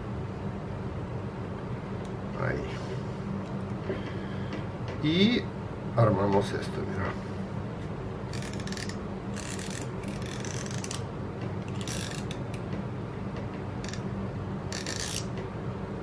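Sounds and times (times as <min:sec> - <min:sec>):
fishing reel clicking: 0:08.3 - 0:11.0, 0:11.7 - 0:12.4, 0:13.8 - 0:14.0, 0:14.7 - 0:15.3.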